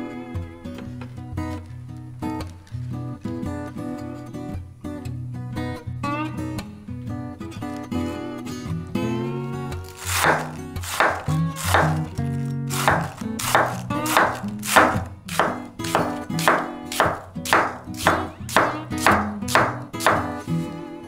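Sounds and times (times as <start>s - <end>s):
background music: 8.9s - 21.0s
knife slicing on cutting board: 9.9s - 12.1s, 12.7s - 20.4s.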